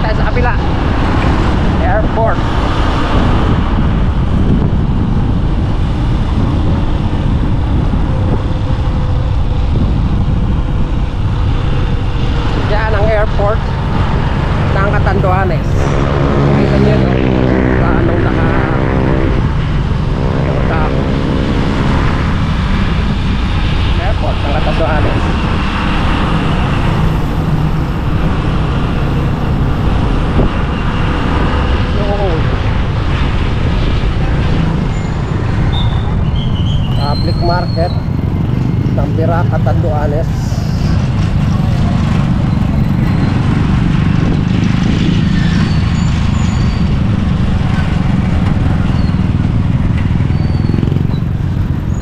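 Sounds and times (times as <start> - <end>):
faint drone: 0.0 - 52.0
vehicle engine and road rumble: 0.0 - 52.0
wind noise: 0.0 - 52.0.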